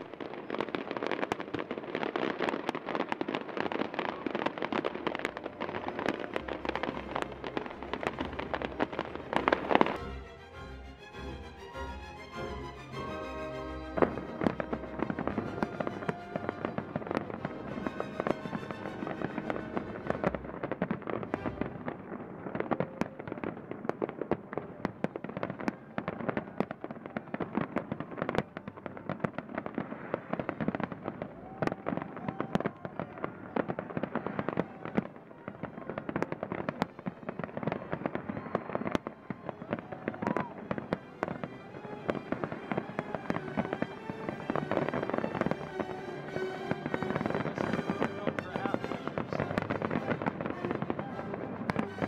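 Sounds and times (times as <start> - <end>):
fireworks bangs and crackling: 0.0 - 52.0
music playing: 6.3 - 20.4, 43.3 - 52.0.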